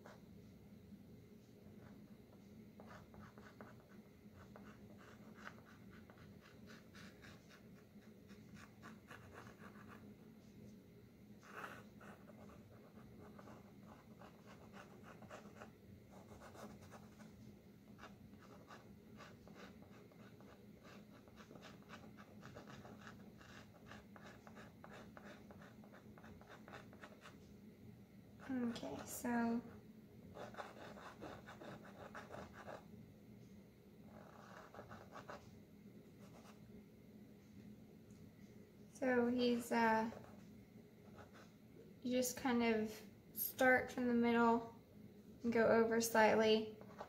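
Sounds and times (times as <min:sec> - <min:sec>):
low steady hum: 0:00.0 - 0:47.0
chalk scratching on canvas: 0:02.8 - 0:10.0, 0:18.0 - 0:27.4, 0:30.4 - 0:32.8.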